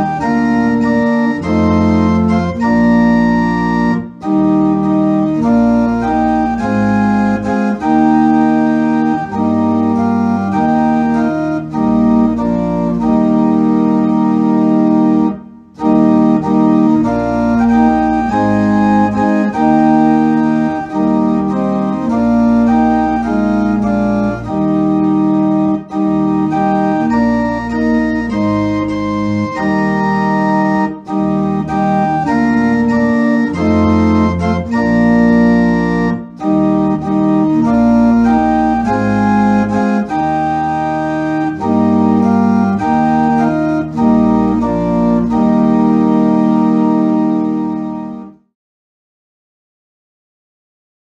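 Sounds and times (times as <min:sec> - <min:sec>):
organ playing hymn chords: 0:00.0 - 0:48.5.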